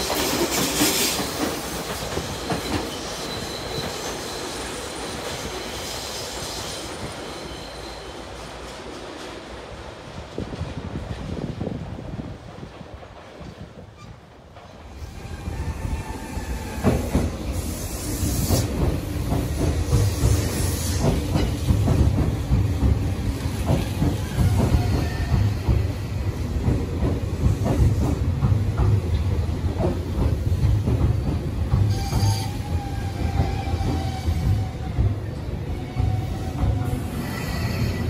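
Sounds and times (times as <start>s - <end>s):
train rumble: 0.0s - 38.0s
brake squeal: 7.2s - 8.2s.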